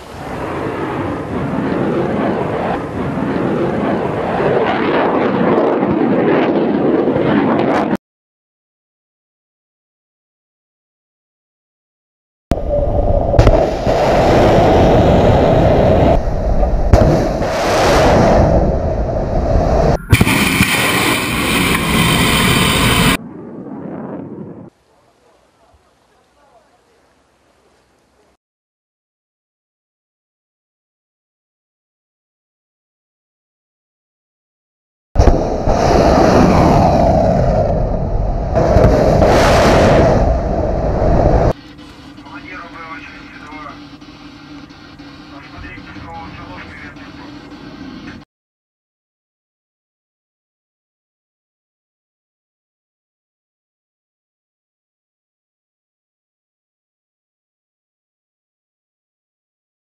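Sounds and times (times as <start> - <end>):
rocket booster roar: 12.5 - 24.7, 35.2 - 41.6
hissing launch roar: 12.6 - 24.7, 35.2 - 44.0.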